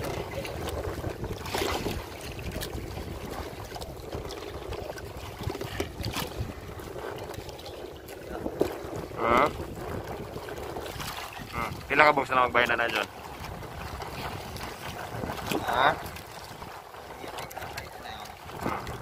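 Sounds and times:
waves splashing against boat hull: 0:00.0 - 0:19.0
wind buffeting microphone: 0:00.0 - 0:19.0.

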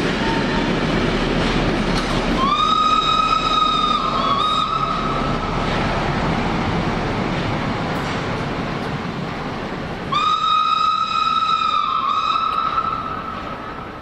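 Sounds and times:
train coaches rumbling past: 0:00.0 - 0:14.0
steam whistle blast: 0:02.4 - 0:05.3, 0:10.1 - 0:13.6.

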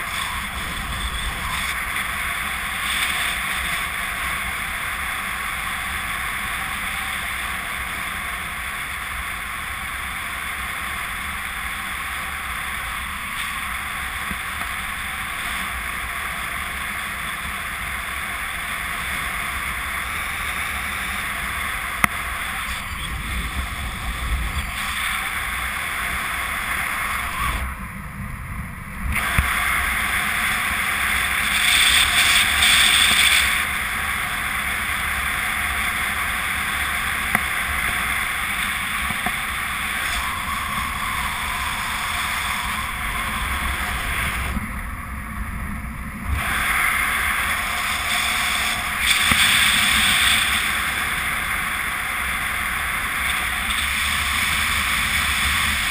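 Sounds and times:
wind rushing over microphone: 0:00.0 - 0:55.9.

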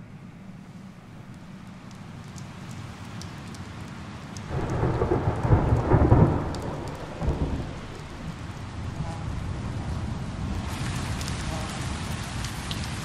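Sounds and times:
faint ticks: 0:01.3 - 0:08.1.

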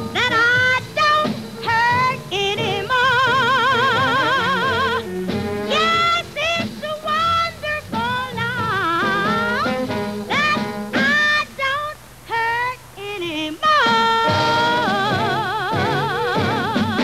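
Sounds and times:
jazz band playing: 0:00.0 - 0:17.0
woman singing with vibrato: 0:00.0 - 0:17.0.

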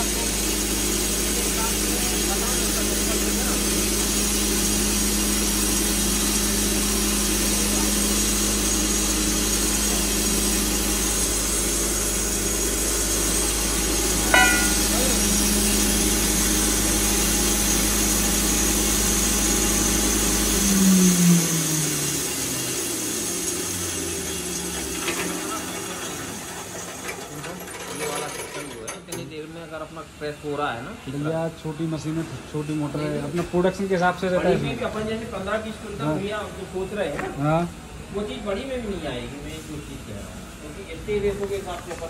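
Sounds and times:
grinder motor humming: 0:00.0 - 0:25.0
sharp knock: 0:14.3 - 0:14.9.

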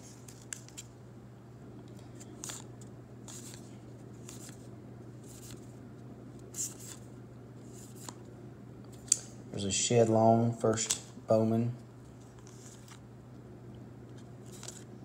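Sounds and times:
low steady hum: 0:00.0 - 0:15.0
cards swishing in hand: 0:02.0 - 0:05.8, 0:06.4 - 0:08.2, 0:14.2 - 0:15.0.

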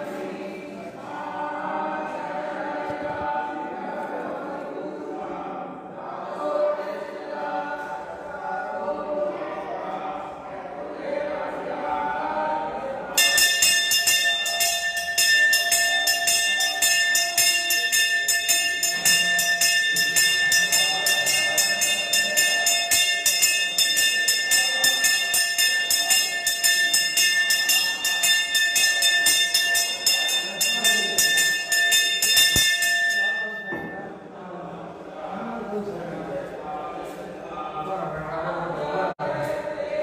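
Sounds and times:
brass hand bell ringing rapidly: 0:13.2 - 0:33.8.

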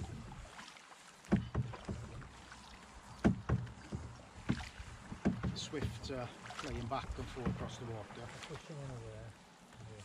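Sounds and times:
paddle splashing in water: 0:00.0 - 0:10.0
sharp knocks: 0:01.3 - 0:02.2, 0:03.2 - 0:06.2.

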